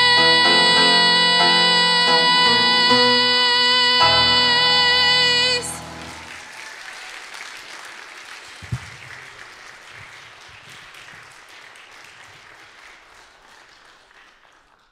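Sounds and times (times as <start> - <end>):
audience applauding: 5.6 - 14.9.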